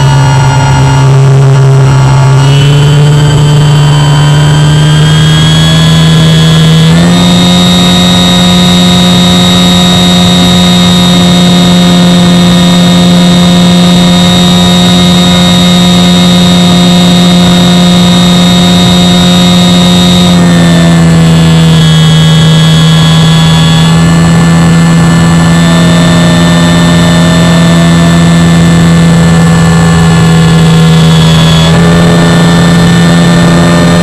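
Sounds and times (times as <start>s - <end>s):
electric motor and propeller whine: 0.0s - 34.0s.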